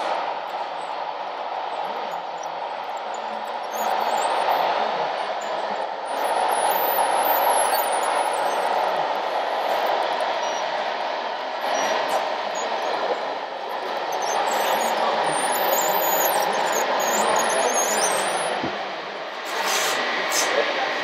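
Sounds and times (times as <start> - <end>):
model machines whirring: 0.0 - 18.7
high wavering motor whines: 5.4 - 18.8.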